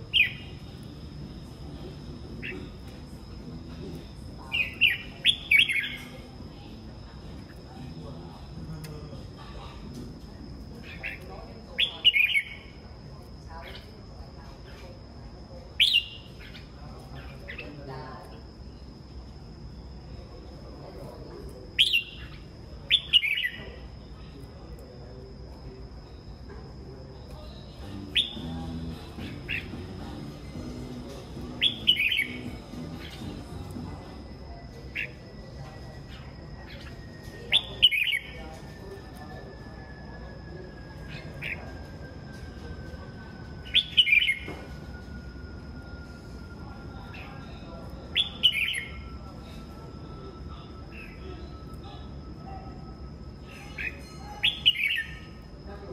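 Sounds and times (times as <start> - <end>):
bulbuls singing: 0.0 - 24.8, 25.5 - 55.9
faint high whine: 0.0 - 55.9
bird calls: 4.1 - 6.8.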